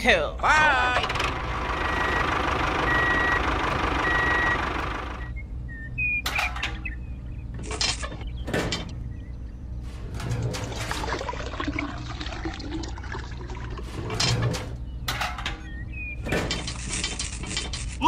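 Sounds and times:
engine rumble and hiss: 1.0s - 5.3s
vehicle reversing alarm beeps: 1.6s - 7.6s, 15.7s - 16.4s.

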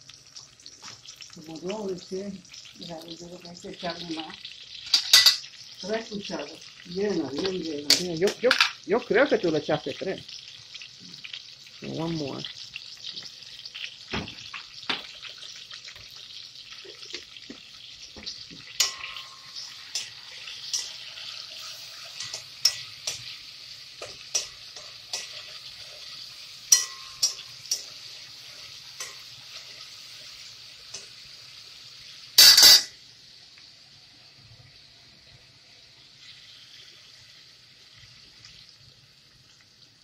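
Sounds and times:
oil sizzling in a pot: 0.0s - 40.0s
spoon clinking against pot: 4.9s - 5.5s, 18.8s - 21.0s, 26.7s - 27.9s, 32.4s - 32.9s.

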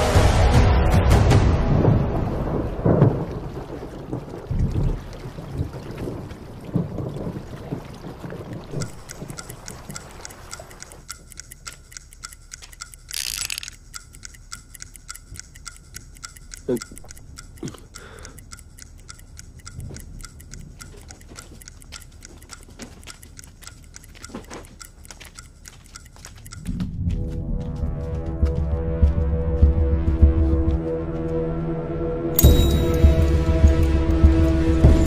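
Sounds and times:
fast clock ticking: 8.7s - 27.0s.

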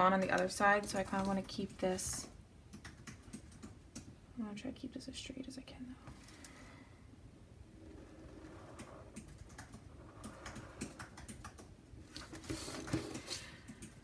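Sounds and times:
pen drawing along plastic ruler: 7.8s - 9.2s.

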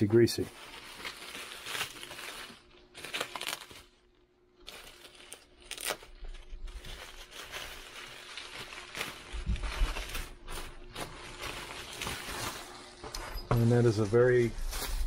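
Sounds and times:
bubble wrap crinkling and crackling: 0.0s - 15.0s.

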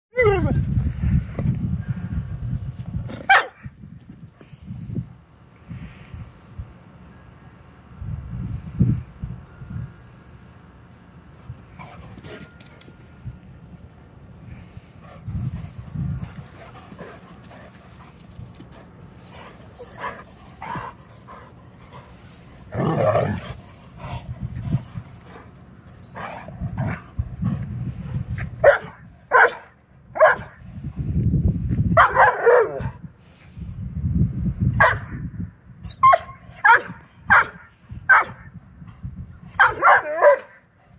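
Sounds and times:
dogs barking: 3.3s - 3.6s, 28.6s - 30.5s, 32.0s - 32.9s, 34.8s - 35.2s, 36.0s - 38.4s, 39.6s - 40.6s.

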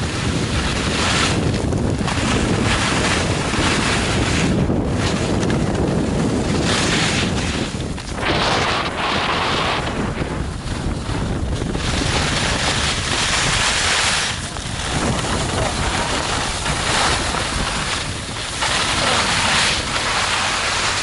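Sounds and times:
skis scraping over snow: 0.0s - 21.0s
wind rushing over microphone: 0.0s - 21.0s.

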